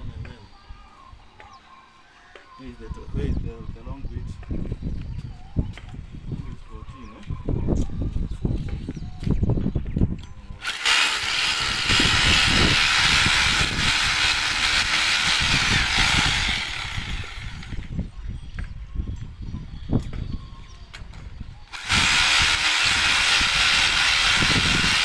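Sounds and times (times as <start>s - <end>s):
power drill running: 10.6s - 17.9s, 21.7s - 25.0s.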